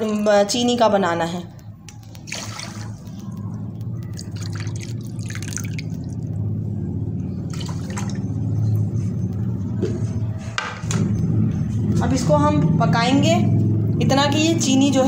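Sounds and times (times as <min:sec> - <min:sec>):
steady low hum: 0:00.6 - 0:15.0
water pouring and splashing in pan: 0:04.1 - 0:06.2.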